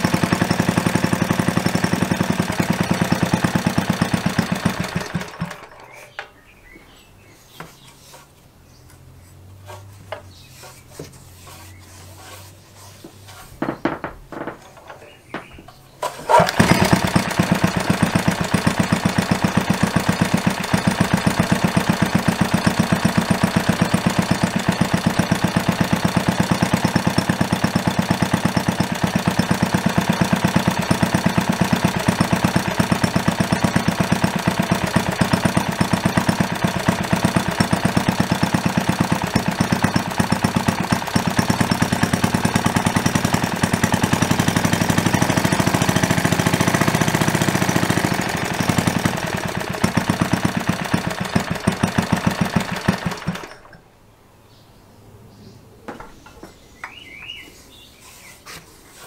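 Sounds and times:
single-cylinder engine running: 0.0s - 6.3s, 15.4s - 53.8s.

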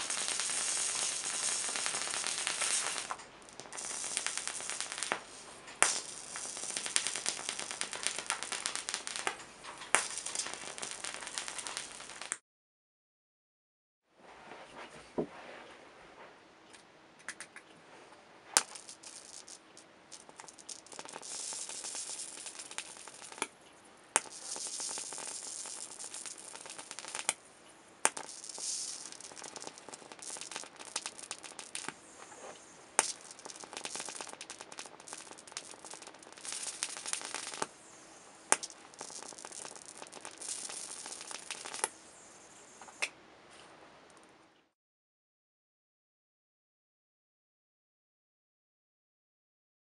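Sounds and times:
electric arc hissing and crackling: 0.0s - 12.4s, 18.5s - 43.1s
sharp arc snaps: 0.0s - 12.4s, 18.5s - 43.2s.

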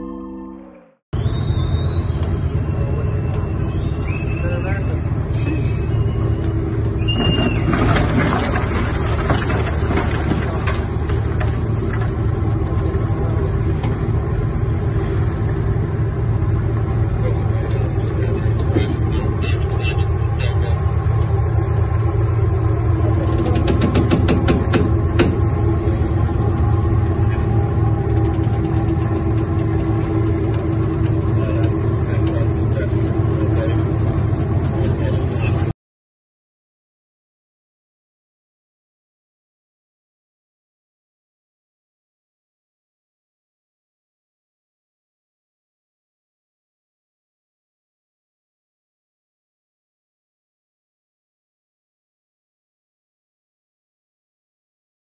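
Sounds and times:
boat engines droning: 1.2s - 35.8s
hull cracking and knocking: 7.1s - 14.0s, 23.2s - 25.7s.

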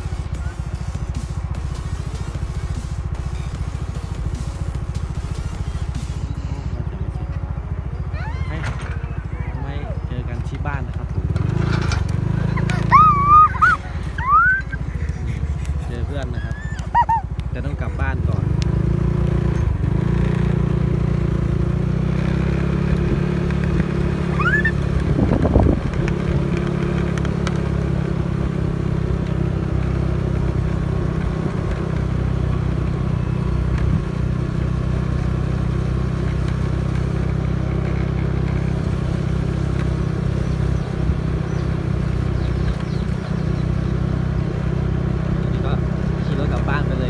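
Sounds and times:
small motorcycle engine: 0.0s - 47.0s
rising squeak: 11.6s - 14.8s, 23.9s - 25.0s.

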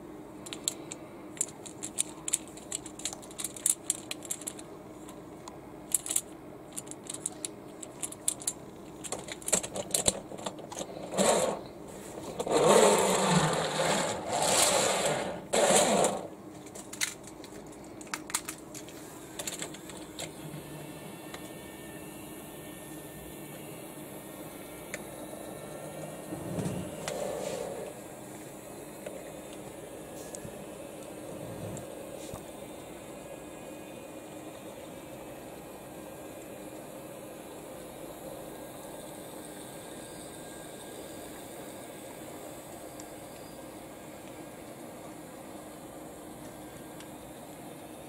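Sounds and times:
toy train wheels rolling on track: 0.4s - 5.2s, 5.9s - 11.6s, 12.2s - 16.3s, 27.0s - 27.9s
wooden toy train clacking: 12.4s - 16.3s.

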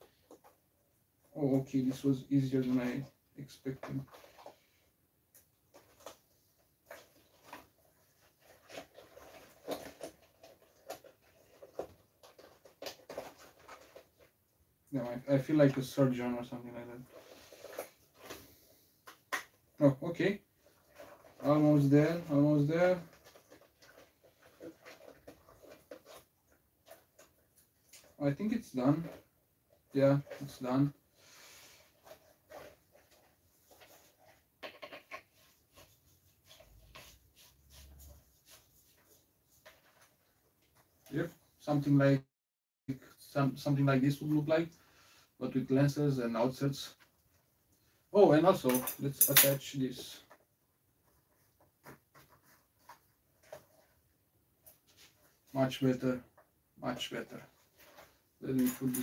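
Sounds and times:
gas mask rubber clicking and rubbing: 2.9s - 14.6s, 16.7s - 30.7s, 31.7s - 41.5s.

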